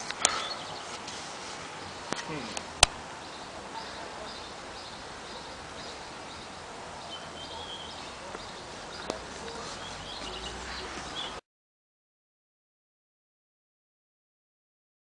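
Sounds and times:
birds chirping: 0.0 - 11.4
outdoor background hiss: 0.0 - 11.4.

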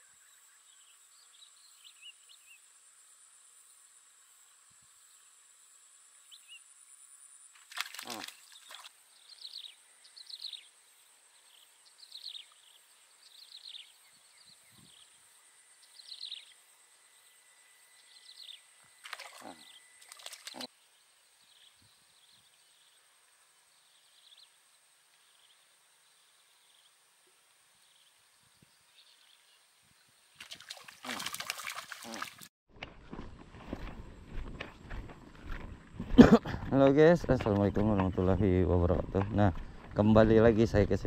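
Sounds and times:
bird chirping: 8.1 - 10.7, 11.4 - 20.7.

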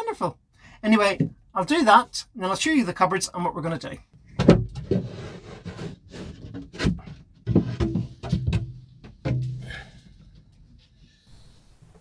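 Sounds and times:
wood knocking and scraping on wood: 4.3 - 11.2.

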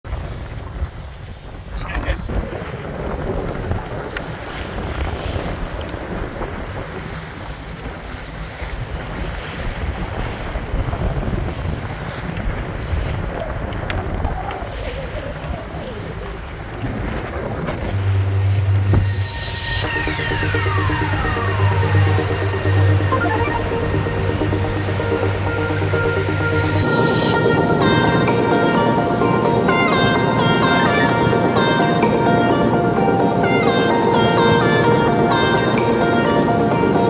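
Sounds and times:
wind buffeting microphone: 0.1 - 28.4
boat engine low rumble: 0.1 - 37.0
water rushing along hull: 0.1 - 37.0.

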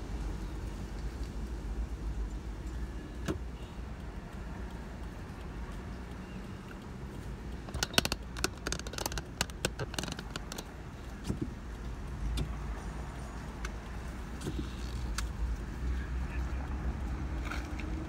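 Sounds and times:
sharp clicks and rattles: 0.4 - 12.6.

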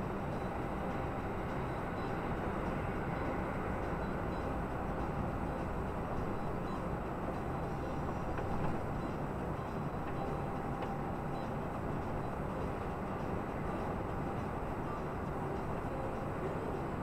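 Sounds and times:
road and engine rumble inside vehicle: 0.0 - 17.0.

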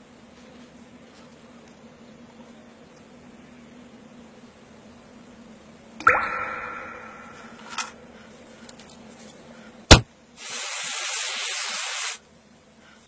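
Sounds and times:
sharp comic pop: 6.0 - 7.6
spraying hiss: 10.4 - 12.2.

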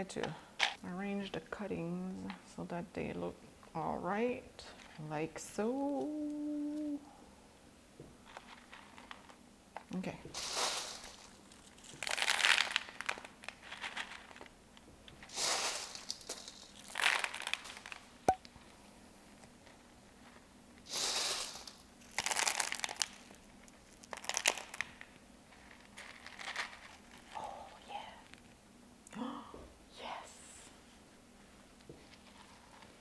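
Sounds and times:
clay pebbles crunching in plastic pot: 8.2 - 18.2, 19.3 - 28.2.

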